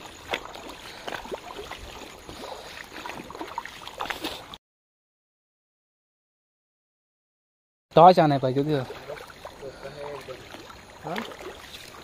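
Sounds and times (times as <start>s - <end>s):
feet wading through stream: 0.0s - 4.6s, 8.1s - 12.0s.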